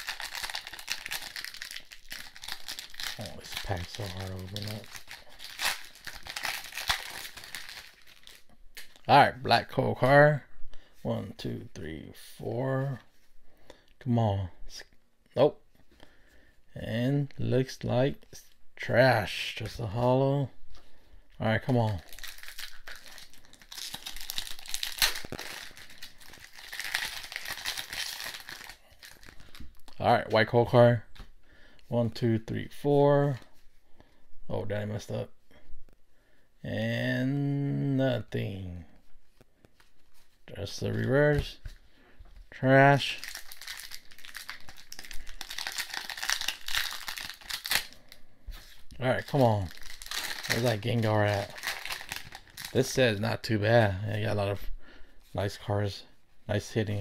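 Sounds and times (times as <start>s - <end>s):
foil wrapper crinkling: 0.0s - 9.0s, 21.9s - 30.0s, 43.1s - 53.0s.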